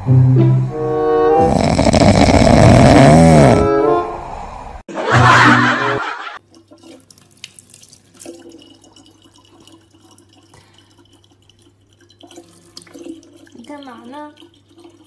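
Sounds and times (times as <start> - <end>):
water trickling into plastic jug: 6.4 - 15.0.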